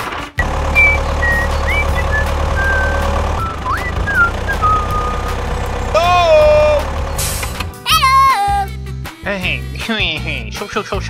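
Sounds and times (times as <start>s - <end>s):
tractor engine running: 0.0s - 7.9s
brief falling call: 0.7s - 5.4s
high whistled notes: 0.7s - 5.4s.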